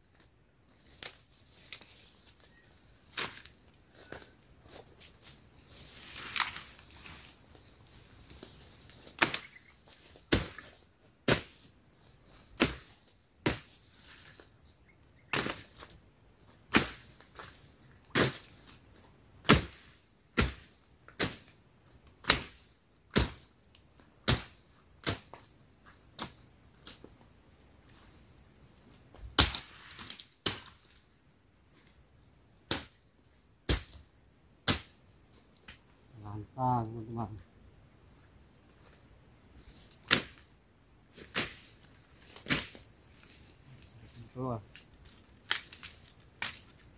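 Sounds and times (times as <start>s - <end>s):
crickets droning: 0.0s - 46.9s
machete chopping undergrowth: 3.1s - 4.2s, 8.3s - 11.7s, 12.3s - 14.4s, 15.3s - 15.9s, 16.6s - 17.5s, 18.1s - 18.6s, 19.4s - 21.5s, 22.2s - 23.5s, 24.2s - 25.5s, 29.3s - 31.0s, 32.6s - 33.0s, 33.7s - 35.0s, 39.9s - 40.5s, 41.2s - 43.3s.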